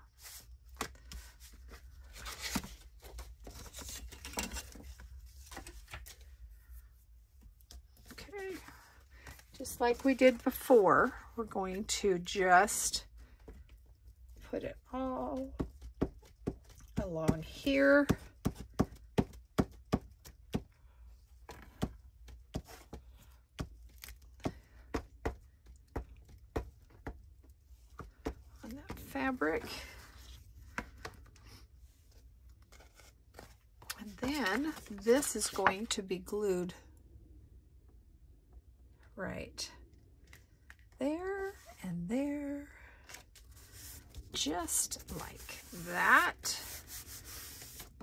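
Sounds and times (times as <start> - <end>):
faint paper rustle: 42.9 - 48.0.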